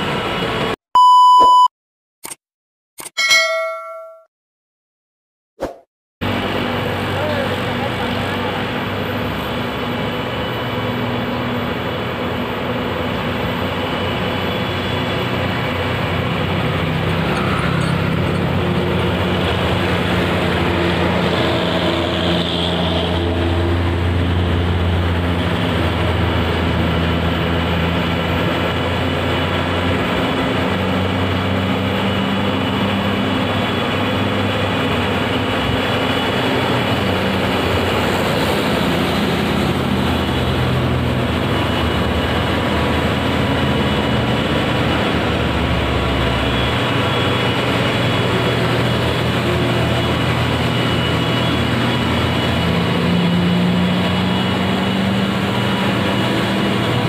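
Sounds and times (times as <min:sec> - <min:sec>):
heavy truck diesel engine drone: 0:00.0 - 0:00.8, 0:06.2 - 0:57.0.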